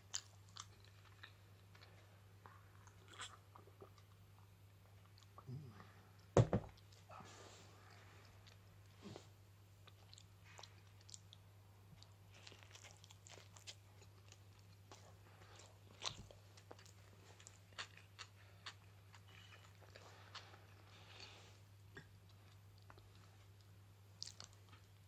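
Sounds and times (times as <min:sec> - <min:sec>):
low steady hum: 0:00.0 - 0:25.0
chewing toast crunches: 0:00.1 - 0:05.4, 0:12.0 - 0:21.3.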